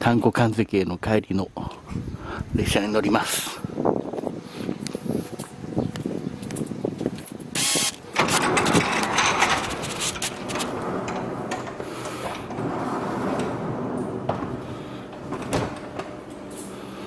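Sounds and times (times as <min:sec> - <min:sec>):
sliding door rumbling along track: 0:06.1 - 0:17.0.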